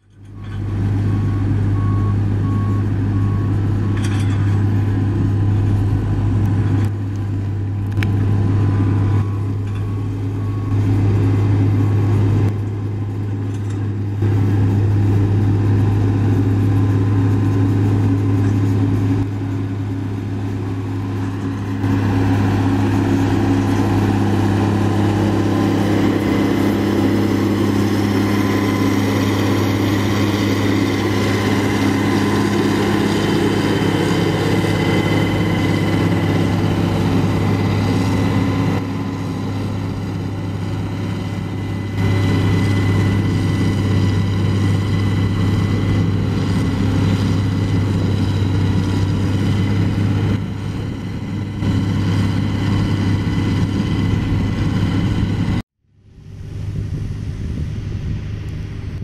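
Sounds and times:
diesel engine drone: 0.0 - 59.0.

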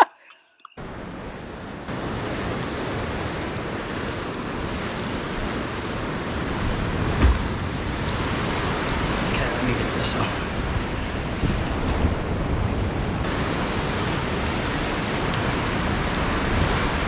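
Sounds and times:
surf washing against rocks: 0.8 - 17.0
wind buffeting microphone: 0.8 - 17.0
low thump: 7.2 - 7.6.

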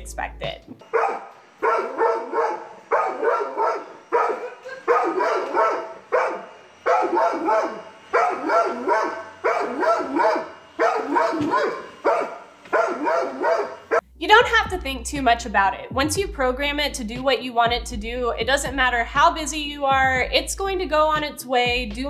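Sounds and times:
dog barking in high yips: 0.9 - 13.8.

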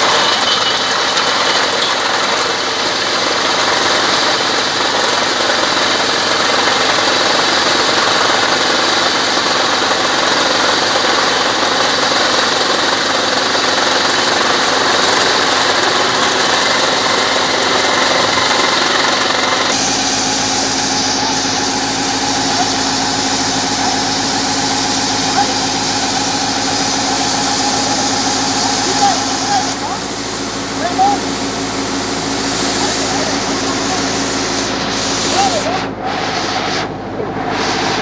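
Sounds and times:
drilling rig engine running: 0.0 - 38.0.

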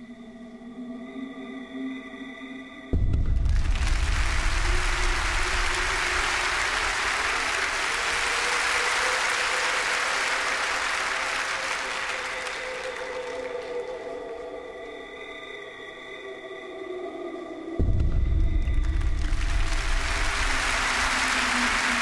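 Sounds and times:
quiet sustained music: 0.0 - 22.0
audience applauding: 3.4 - 14.2, 18.6 - 22.0.

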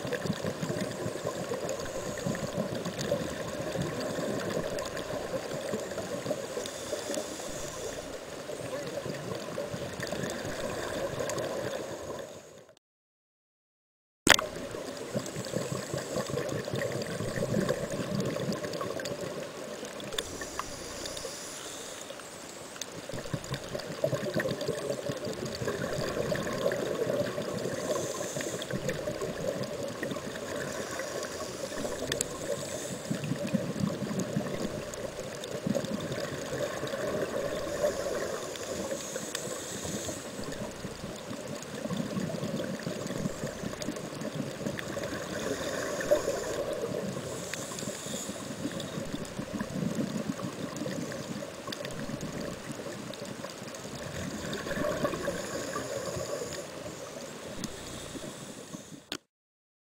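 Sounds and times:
underwater gurgling wash: 0.0 - 12.7, 14.3 - 59.2
high hissing: 6.4 - 8.1, 20.2 - 22.8, 27.6 - 28.8, 37.6 - 40.6, 45.2 - 49.0.

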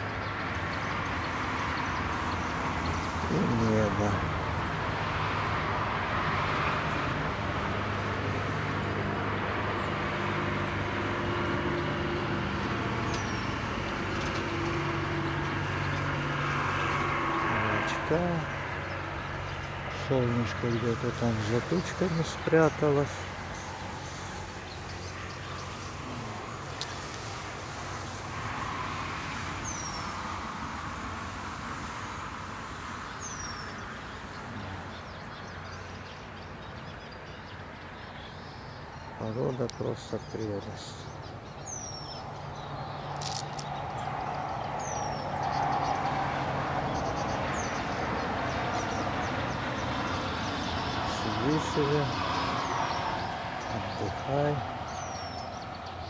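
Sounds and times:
distant road traffic: 0.0 - 56.0.

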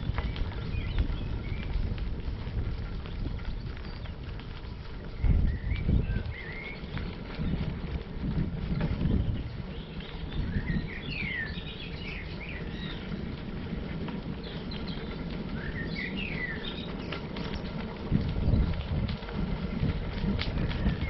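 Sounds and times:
bicycle tyres on gravel: 0.0 - 21.0
songbird chirping: 5.2 - 7.7, 8.9 - 13.6, 14.2 - 17.9.

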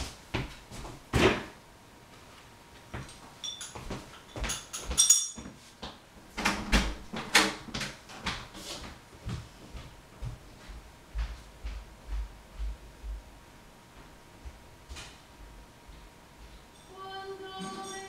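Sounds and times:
ringing clinks of hard objects: 3.4 - 5.5, 16.7 - 18.0.

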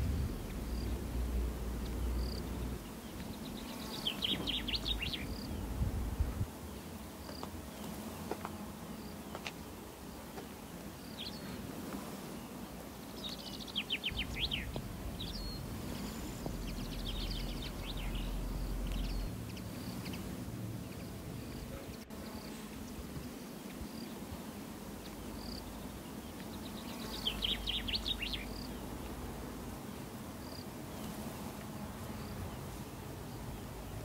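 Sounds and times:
low rumble: 0.0 - 2.7
birds chirping: 0.0 - 34.0.

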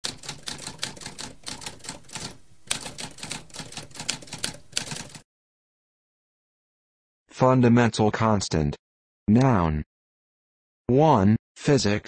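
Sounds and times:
typewriter typing: 0.0 - 5.2.

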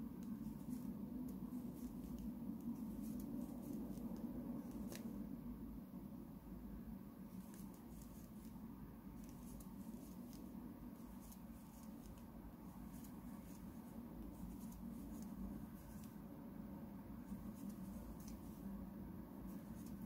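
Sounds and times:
crochet hook scratching yarn: 17.3 - 18.6.

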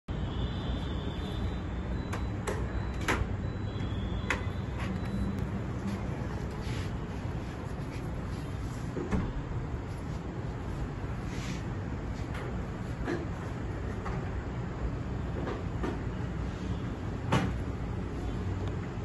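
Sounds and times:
sharp clicks and knocks: 4.2 - 5.2.

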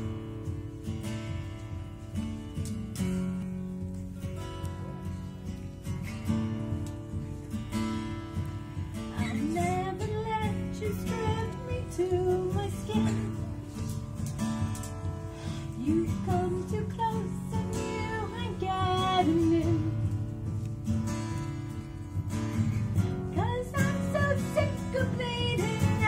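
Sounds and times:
acoustic guitars strumming: 0.0 - 26.0
woman singing: 9.1 - 14.0, 15.5 - 20.3, 23.2 - 26.0.

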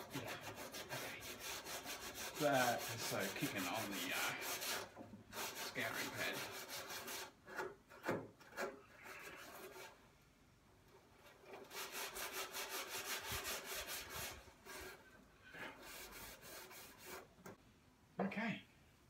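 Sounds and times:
scouring pad scrubbing metal: 0.0 - 7.4, 11.2 - 17.3.

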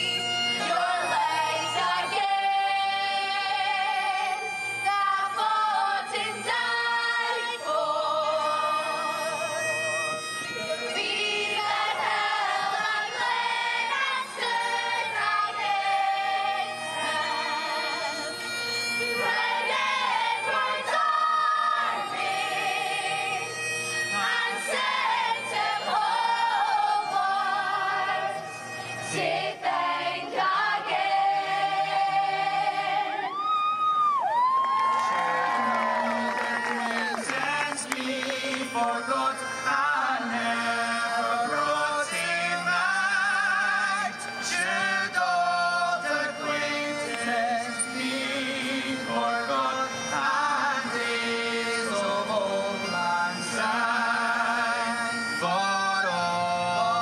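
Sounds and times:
musical accompaniment: 0.0 - 57.0
young voices singing in chorus: 0.6 - 4.3, 4.9 - 9.1, 11.0 - 18.2, 19.2 - 23.5, 24.1 - 28.4, 29.1 - 33.5.

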